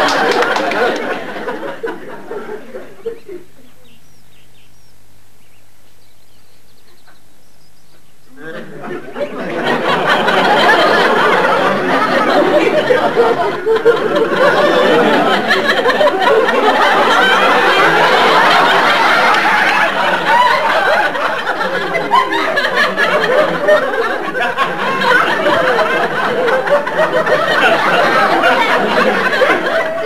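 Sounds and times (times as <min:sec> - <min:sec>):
audience laughing: 0:00.0 - 0:03.5, 0:08.3 - 0:30.0.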